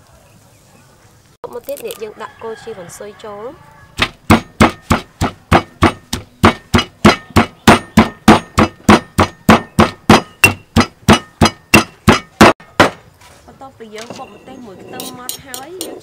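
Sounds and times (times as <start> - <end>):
stone pestle pounding in mortar: 4.0 - 13.0.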